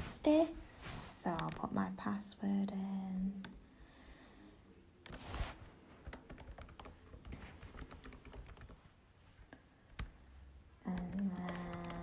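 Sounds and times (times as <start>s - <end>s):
faint keyboard typing: 1.3s - 2.0s, 3.4s - 3.6s, 5.0s - 8.9s, 9.9s - 12.0s.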